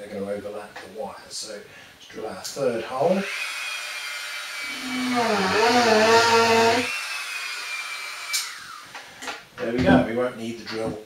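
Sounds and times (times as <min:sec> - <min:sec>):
electric drill whining: 0:03.3 - 0:08.9
drill bit groaning into wood: 0:04.6 - 0:07.5.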